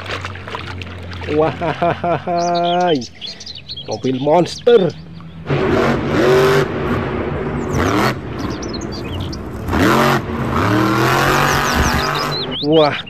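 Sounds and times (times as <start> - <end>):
engine and arena rumble: 0.0 - 13.0
truck engine revving hard: 5.4 - 12.7.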